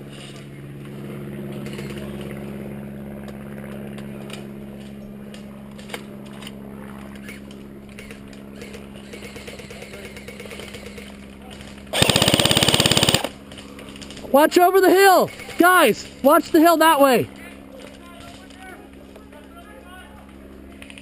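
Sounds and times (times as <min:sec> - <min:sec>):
low mechanical hum: 0:00.0 - 0:21.0
light snaps and rustles: 0:11.3 - 0:11.9, 0:17.8 - 0:19.6, 0:20.2 - 0:21.0.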